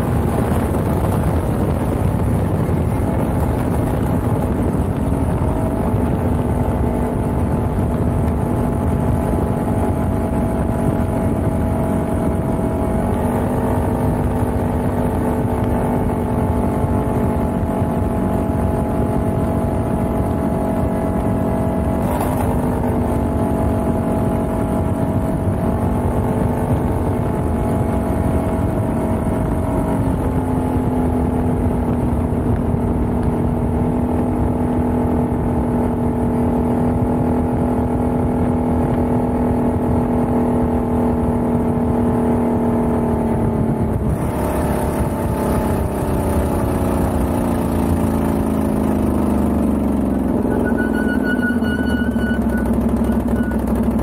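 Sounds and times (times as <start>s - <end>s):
atv engine running: 0.0s - 54.0s
tyres on gravel: 22.0s - 23.0s.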